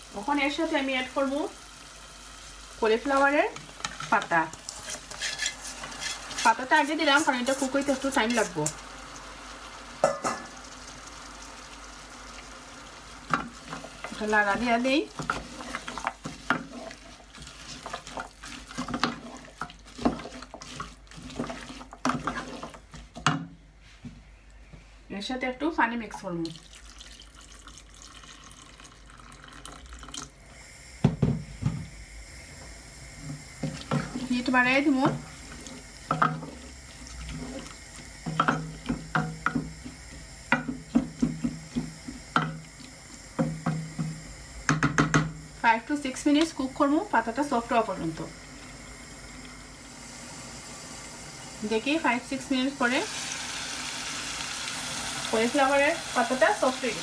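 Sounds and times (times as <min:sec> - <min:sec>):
wooden spoon scraping metal pot: 0:03.0 - 0:08.8, 0:13.3 - 0:23.4, 0:33.6 - 0:42.5
spoon knocking against pot: 0:10.0 - 0:10.5, 0:38.3 - 0:39.7, 0:43.4 - 0:45.4.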